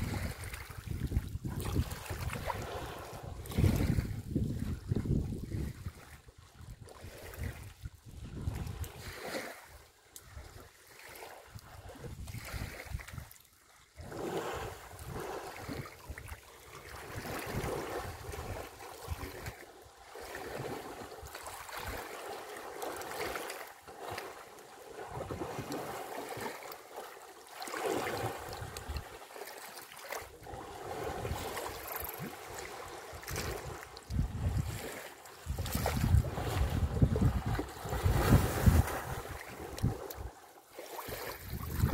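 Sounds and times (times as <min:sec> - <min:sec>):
wind buffeting microphone: 0:00.0 - 0:06.1, 0:06.7 - 0:09.2, 0:30.4 - 0:40.4, 0:41.1 - 0:41.9
water splashing and sloshing: 0:00.0 - 0:41.9.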